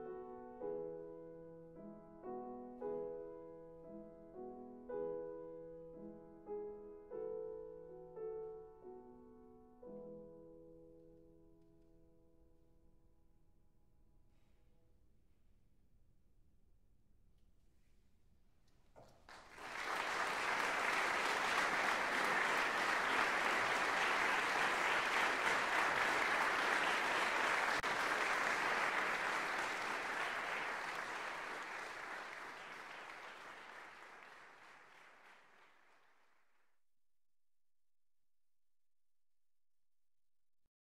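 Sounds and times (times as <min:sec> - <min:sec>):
audience applauding: 0:19.3 - 0:36.2.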